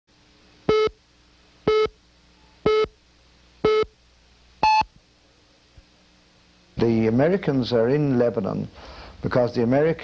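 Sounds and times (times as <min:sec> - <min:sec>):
short electronic countdown beeps: 0:00.7 - 0:01.0, 0:01.7 - 0:02.0, 0:02.6 - 0:03.0, 0:03.6 - 0:04.0, 0:04.6 - 0:04.9.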